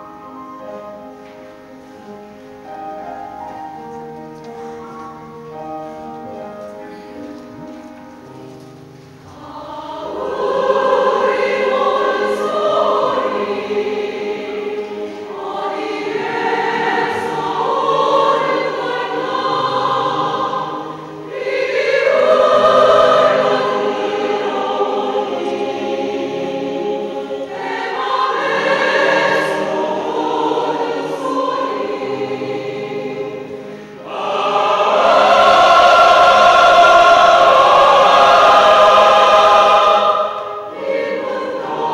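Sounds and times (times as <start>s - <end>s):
mixed choir singing: 9.2s - 41.9s.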